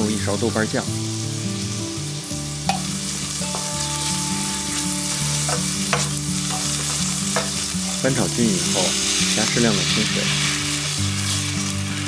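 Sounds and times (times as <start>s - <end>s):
meat sizzling in oil: 0.0s - 12.0s
spatula scraping a pan: 3.5s - 12.0s.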